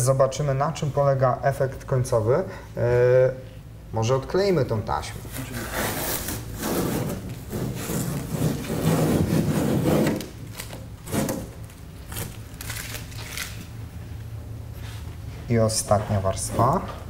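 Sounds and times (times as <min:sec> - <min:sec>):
masking tape peeling: 0:05.3 - 0:13.8.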